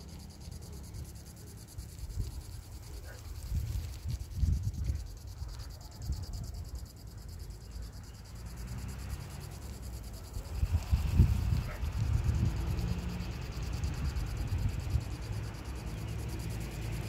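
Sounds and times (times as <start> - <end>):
high insect trill: 0.0 - 17.0
wind buffeting microphone: 1.9 - 6.8, 10.2 - 16.5.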